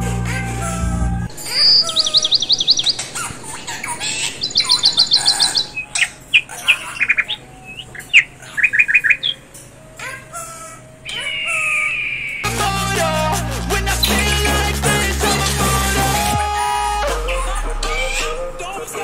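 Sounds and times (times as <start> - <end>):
bird chirping: 1.3 - 12.5, 13.8 - 14.4.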